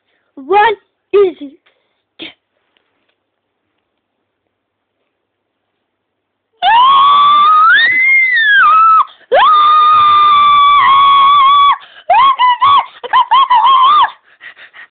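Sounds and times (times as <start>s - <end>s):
high-pitched screaming: 6.6s - 12.8s.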